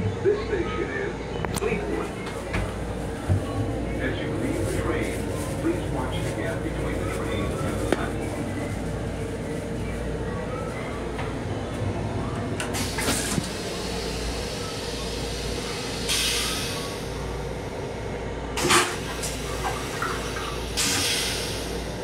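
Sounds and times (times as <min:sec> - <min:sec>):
moving train noise: 0:00.0 - 0:22.0
train toilet flushing: 0:12.4 - 0:17.9, 0:18.5 - 0:22.0.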